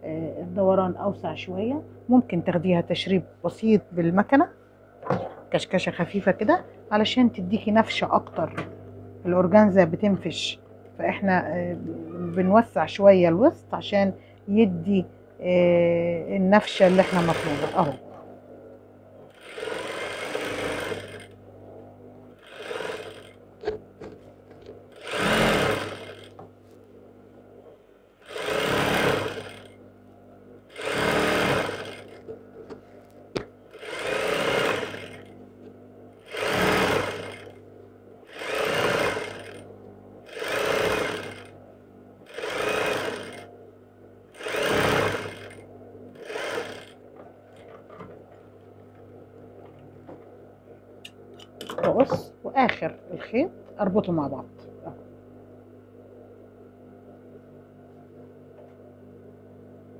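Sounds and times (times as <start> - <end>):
sewing machine stitching: 16.7 - 18.0, 19.3 - 21.4, 22.4 - 23.4, 24.9 - 26.4, 28.2 - 29.8, 30.7 - 32.3, 33.7 - 35.3, 36.2 - 37.6, 38.3 - 39.7, 40.3 - 41.6, 42.3 - 43.5, 44.3 - 45.6, 46.2 - 47.0.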